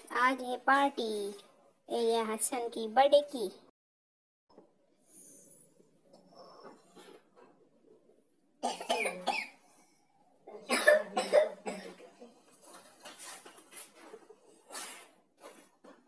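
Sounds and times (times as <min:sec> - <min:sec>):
faint scattered noises: 0:04.5 - 0:16.0
person coughing: 0:08.6 - 0:09.6, 0:10.6 - 0:12.1.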